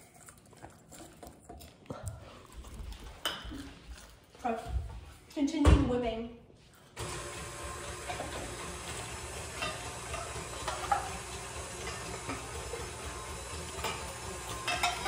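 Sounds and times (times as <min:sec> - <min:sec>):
stand mixer whipping in steel bowl: 0:07.0 - 0:15.0.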